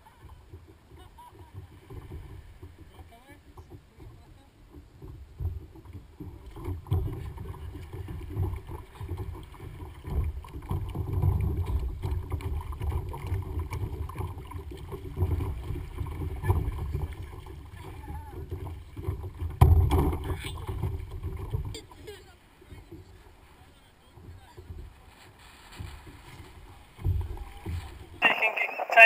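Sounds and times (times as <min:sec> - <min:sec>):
paddle splashing water: 0:00.0 - 0:29.0
wind rumble on microphone: 0:03.6 - 0:21.8
loud splash or knock: 0:19.4 - 0:21.1.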